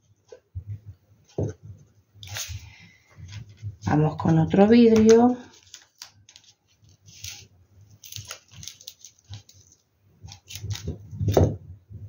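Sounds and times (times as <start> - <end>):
pieces pulled off adhesive tape: 2.2 - 2.6, 5.5 - 11.4.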